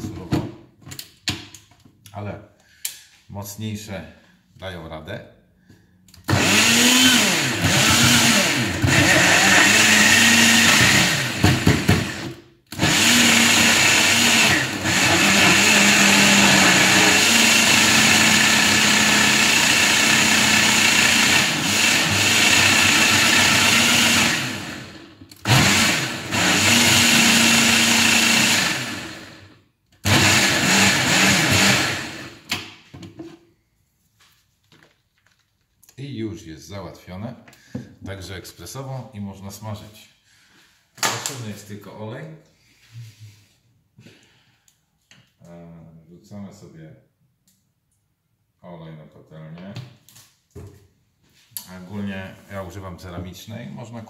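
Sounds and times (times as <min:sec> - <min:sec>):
blender motor grinding: 0:06.3 - 0:32.5.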